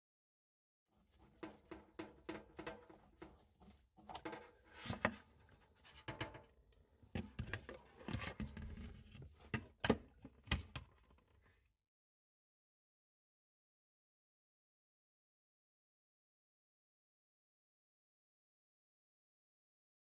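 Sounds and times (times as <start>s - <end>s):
hands handling hose and basin: 1.0s - 11.5s.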